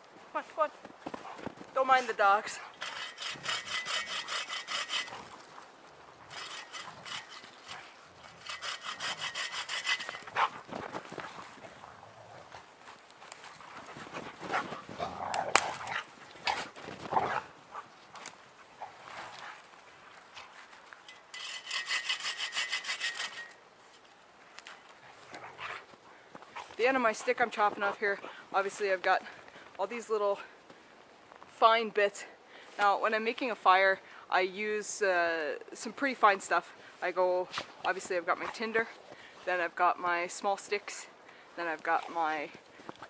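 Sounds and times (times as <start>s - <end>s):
bow saw cutting wood: 2.8s - 5.2s, 6.3s - 10.3s, 21.4s - 23.6s.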